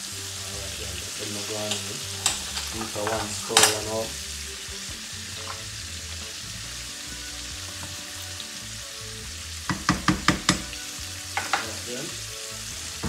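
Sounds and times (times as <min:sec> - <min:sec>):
fish sizzling in oil: 0:00.0 - 0:13.0
wooden spoon knocking on pot: 0:09.7 - 0:10.8, 0:11.4 - 0:11.7.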